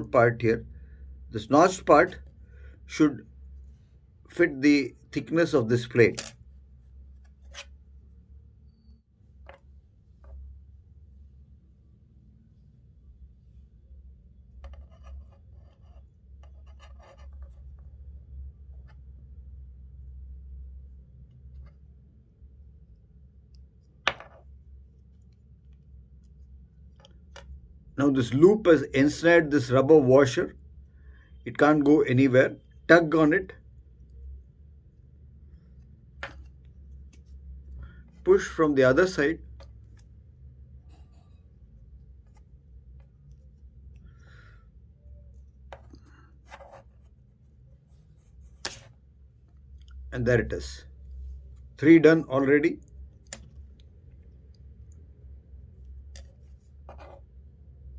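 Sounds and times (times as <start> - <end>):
low steady hum: 0.0 - 57.9
handling small parts: 6.0 - 8.0, 55.6 - 57.5.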